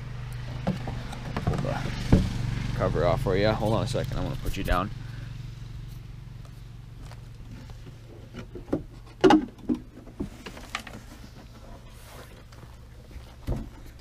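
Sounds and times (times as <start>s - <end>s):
engine cover knocking and clattering: 0.5s - 2.5s, 7.5s - 11.6s.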